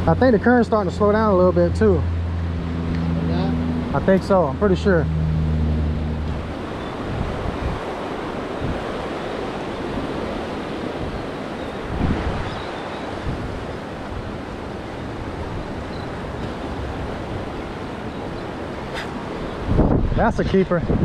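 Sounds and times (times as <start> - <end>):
wind buffeting microphone: 5.0 - 21.0.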